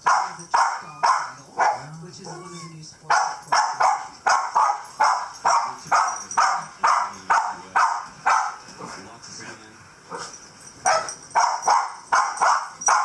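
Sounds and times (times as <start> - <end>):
small dog barking sharply: 0.1 - 1.9, 3.1 - 8.6, 10.9 - 13.0.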